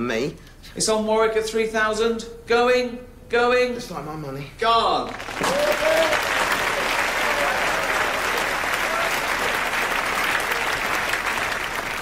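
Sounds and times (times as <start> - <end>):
audience applause: 5.1 - 12.0.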